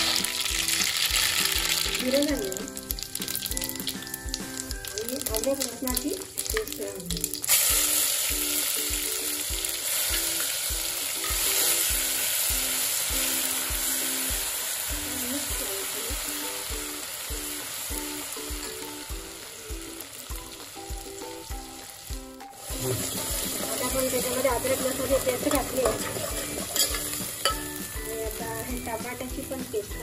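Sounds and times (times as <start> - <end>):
paste sizzling in hot oil: 0.0 - 30.0
metal ladle stirring: 23.0 - 28.0.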